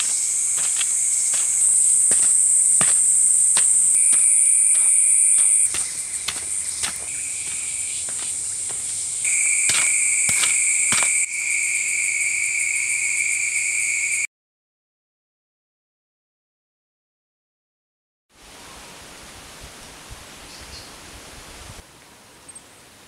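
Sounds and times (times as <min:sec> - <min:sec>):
digging stick chopping soil: 0:00.0 - 0:11.3
forest insects chorus: 0:00.0 - 0:14.3.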